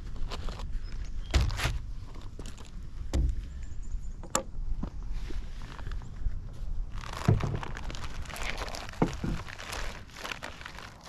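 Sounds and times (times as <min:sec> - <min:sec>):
plastic bag crinkling: 0:06.8 - 0:11.0.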